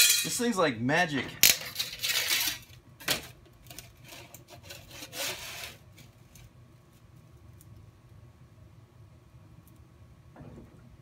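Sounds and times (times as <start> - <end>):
sharp metal clack: 0.0 - 0.4
sheet metal scraping: 3.7 - 6.2.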